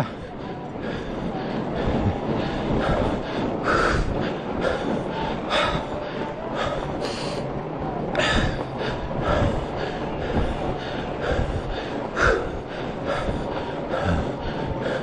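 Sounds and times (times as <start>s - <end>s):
cyclist panting heavily: 0.0s - 15.0s
tyres rumbling on snow: 0.0s - 15.0s.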